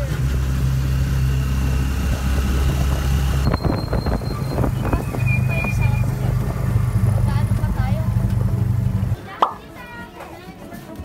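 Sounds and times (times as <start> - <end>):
tricycle engine humming: 0.0 - 9.3
wind rushing: 1.8 - 7.3.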